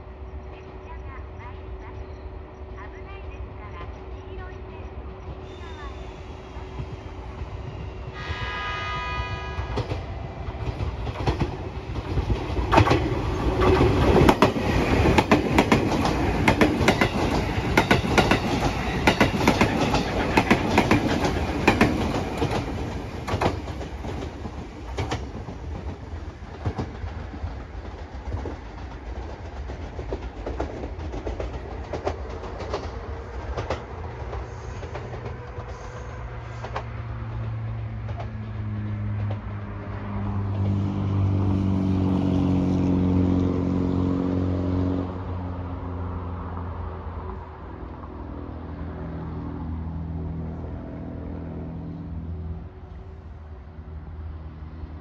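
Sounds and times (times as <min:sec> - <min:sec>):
train horn: 0:05.4 - 0:06.8, 0:07.9 - 0:10.9, 0:35.1 - 0:36.8
train wheels clattering over rail joints: 0:09.8 - 0:35.8.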